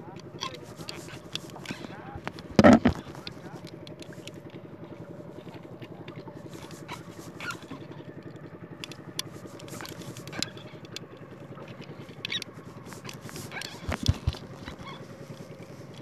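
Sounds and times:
boat engine throbbing: 0.0 - 16.0
phone handling clicks: 2.2 - 3.2.

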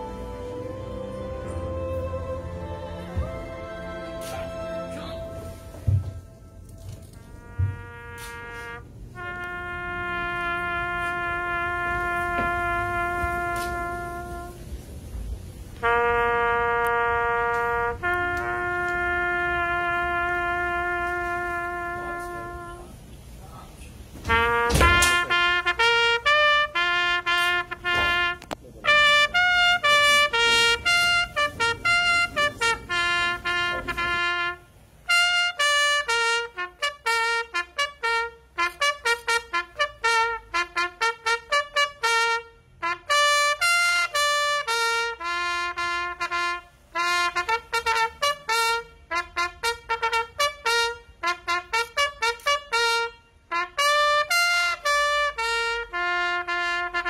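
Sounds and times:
solo trumpet melody: 0.0 - 15.1, 15.7 - 23.1, 24.2 - 57.0
low rumbling noise: 0.0 - 25.8.

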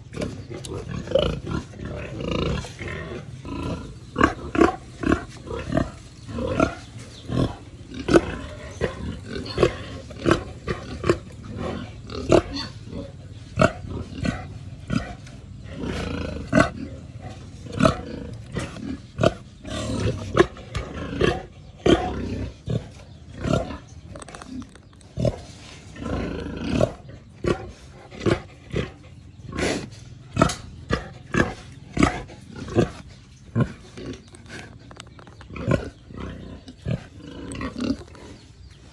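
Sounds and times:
pig grunting and squealing: 0.0 - 38.9.

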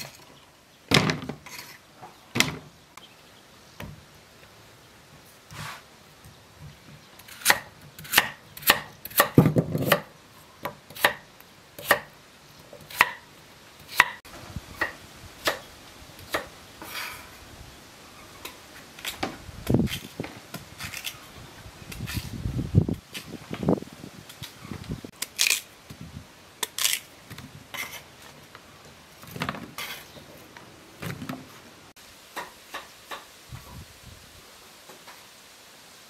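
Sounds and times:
cleaver chopping on wooden block: 12.9 - 13.2.

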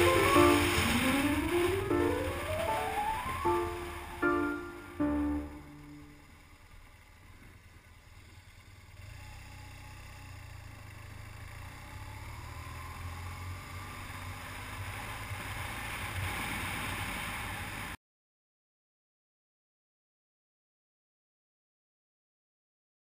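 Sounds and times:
wind and road noise: 0.0 - 10.0, 11.0 - 18.0
motorcycle engine accelerating: 0.0 - 18.0.

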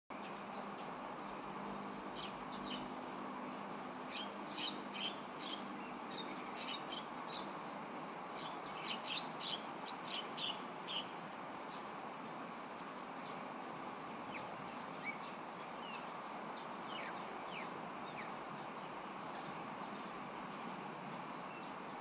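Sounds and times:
steady background hiss: 0.1 - 22.0
sharp chirping calls: 4.1 - 7.5.

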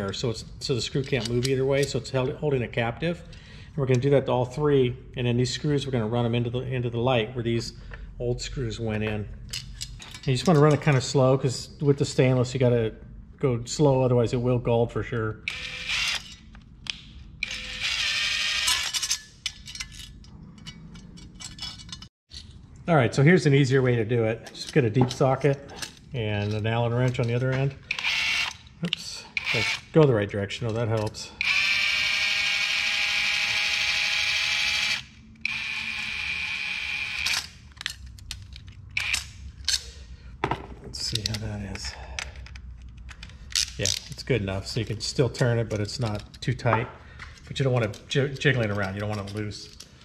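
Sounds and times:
cordless drill running: 15.5 - 16.2, 17.4 - 18.9, 27.9 - 28.5, 31.4 - 37.2
metallic clicks of screw and nut: 37.1 - 40.0.

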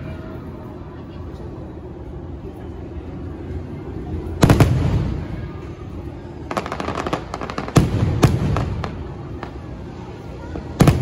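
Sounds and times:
firework bangs: 4.4 - 5.4, 6.5 - 9.6, 10.8 - 11.0
firework crackles: 4.4 - 9.9, 10.6 - 11.0.

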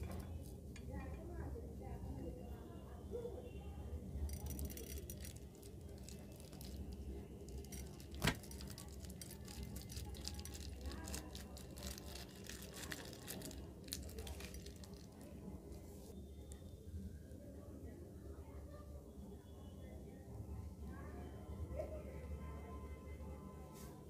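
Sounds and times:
beads pattering into glass dish: 4.3 - 15.4
plastic bag crinkling: 4.3 - 15.8.

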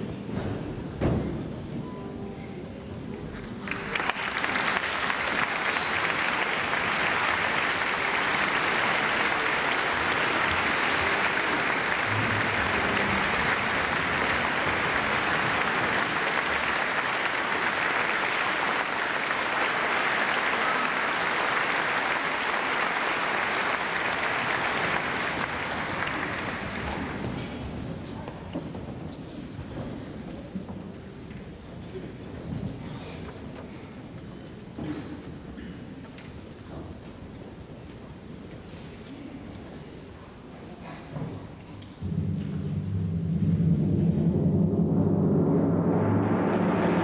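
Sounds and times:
audience applauding: 3.4 - 27.8.

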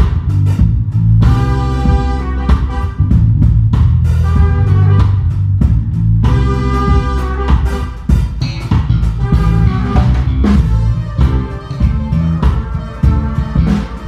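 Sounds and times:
drum kit beat: 0.0 - 14.0
low bass line: 0.0 - 14.0
electric guitar: 6.3 - 14.0.

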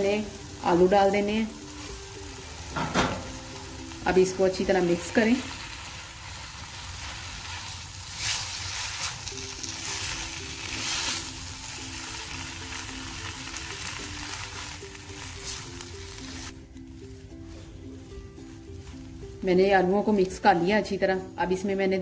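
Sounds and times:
food sizzling in a pan: 0.0 - 16.6
quiet background music: 0.0 - 22.0
spatula scraping a pan: 6.2 - 11.4.

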